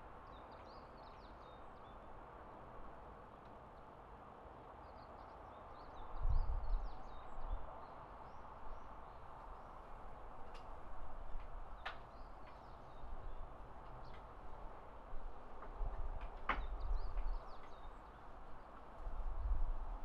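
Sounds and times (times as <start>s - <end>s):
small birds chirping: 11.8s - 14.3s, 16.6s - 18.8s.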